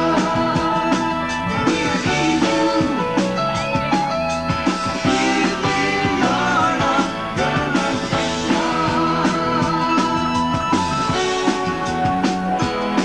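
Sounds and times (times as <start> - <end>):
lead singer's voice: 0.0 - 3.3, 5.0 - 10.5
live rock band playing: 0.0 - 13.0.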